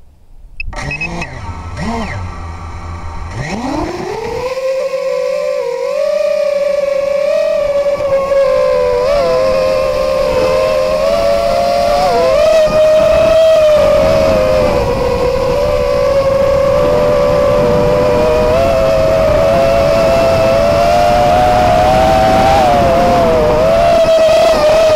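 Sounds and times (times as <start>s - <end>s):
low rushing noise: 0.0s - 4.4s
drone motors whining: 0.6s - 24.9s.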